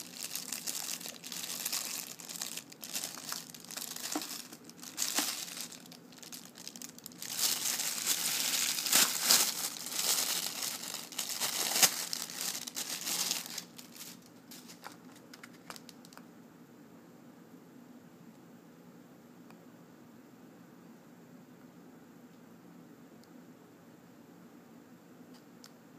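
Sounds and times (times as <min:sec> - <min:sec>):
plastic bag crinkling: 0:00.0 - 0:16.2.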